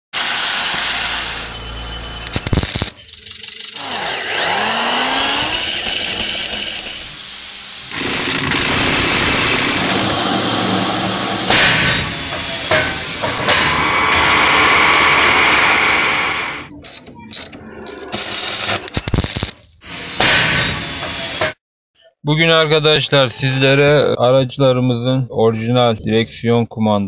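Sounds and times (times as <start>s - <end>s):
rising whine: 0.2s - 16.7s
angle grinder on metal: 2.3s - 12.2s, 13.6s - 16.7s
metal lathe running: 3.0s - 16.7s.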